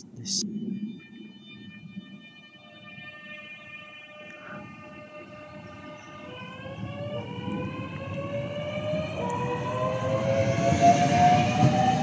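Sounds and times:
train rumble: 0:05.2 - 0:12.0.

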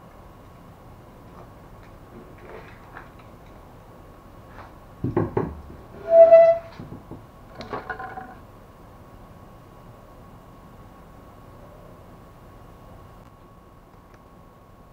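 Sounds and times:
high pitched squeal: 0:06.0 - 0:06.7.

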